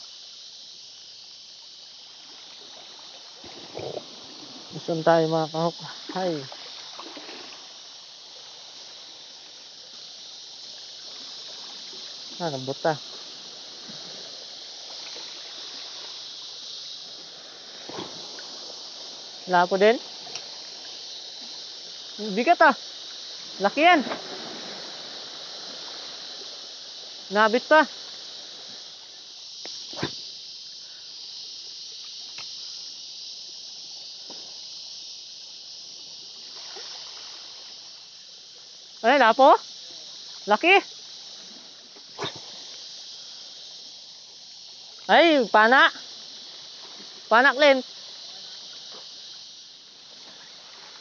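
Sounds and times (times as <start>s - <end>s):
high-pitched outdoor hiss: 0.0s - 51.0s
faint ticks: 20.2s - 21.0s, 29.6s - 31.0s, 32.0s - 32.8s.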